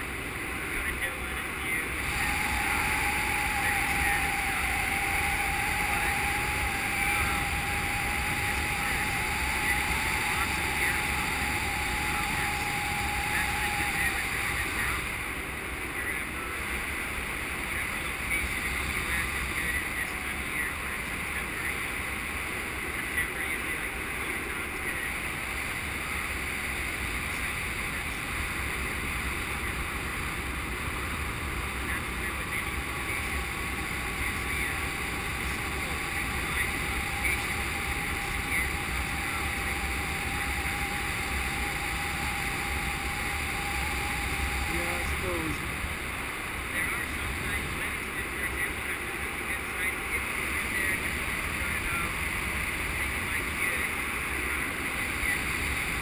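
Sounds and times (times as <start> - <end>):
wind rushing over microphone: 1.8 - 15.8.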